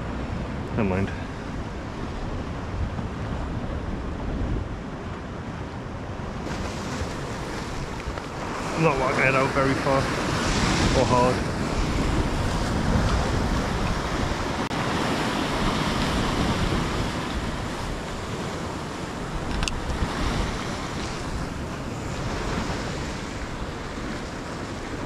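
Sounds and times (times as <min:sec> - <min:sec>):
wind buffeting microphone: 0:00.0 - 0:25.0
surf breaking on rocks: 0:06.4 - 0:25.0.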